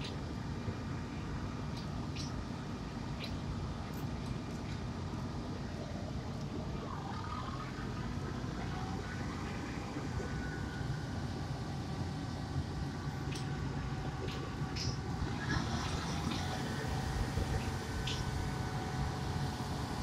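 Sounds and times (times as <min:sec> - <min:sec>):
diesel engine rumble: 0:00.0 - 0:20.0
mechanical whine: 0:00.0 - 0:20.0.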